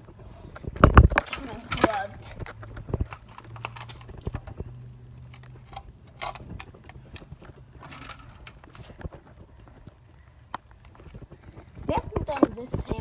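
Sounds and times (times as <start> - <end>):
low steady hum: 0.0 - 13.0
debris crunching underfoot: 0.4 - 13.0.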